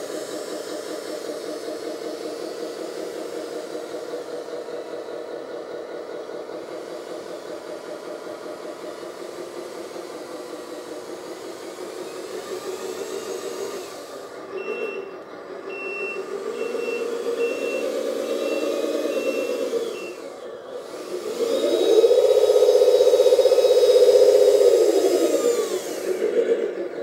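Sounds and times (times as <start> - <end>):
toy truck motor running: 0.0 - 27.0
reverse warning beeper: 14.6 - 20.2.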